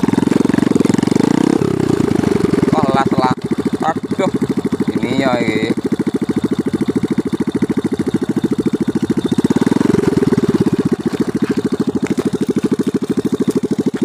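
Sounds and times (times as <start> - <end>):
small motorcycle engine putter: 3.0 - 14.0.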